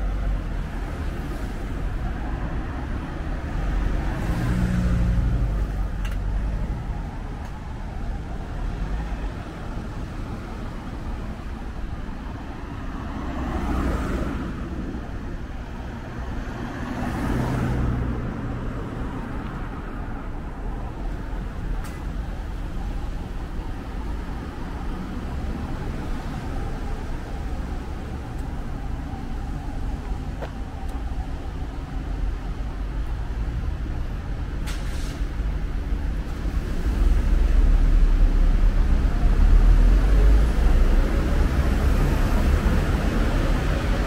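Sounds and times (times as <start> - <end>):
traffic rumbling by: 0.0 - 44.0
short hiss: 34.6 - 35.3.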